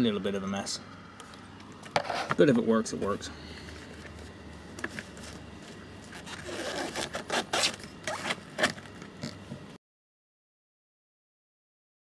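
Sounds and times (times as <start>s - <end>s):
short scrapes and knocks: 1.9s - 2.4s.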